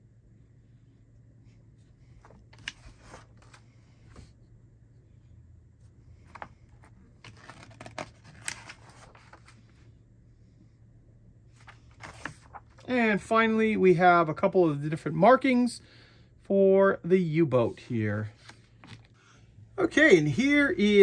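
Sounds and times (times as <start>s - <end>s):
paper pages rustling: 1.8s - 4.3s, 6.2s - 9.8s, 11.6s - 12.9s, 18.2s - 19.2s
sharp paper crackle: 7.2s - 9.6s, 11.6s - 12.8s.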